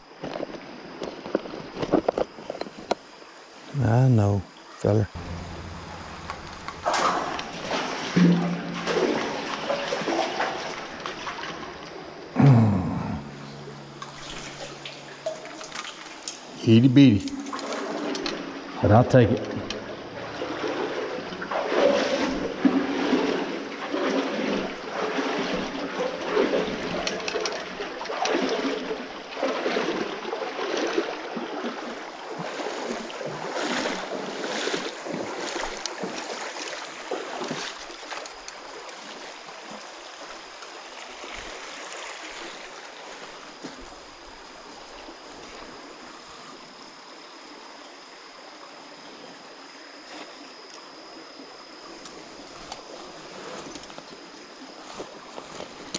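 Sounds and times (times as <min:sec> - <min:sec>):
thin high whine: 0:03.6 - 0:23.8, 0:42.4 - 0:55.9
creek flowing: 0:04.8 - 0:44.9
footsteps splashing in water: 0:05.2 - 0:12.0, 0:13.2 - 0:16.6, 0:17.2 - 0:18.6, 0:19.3 - 0:39.2.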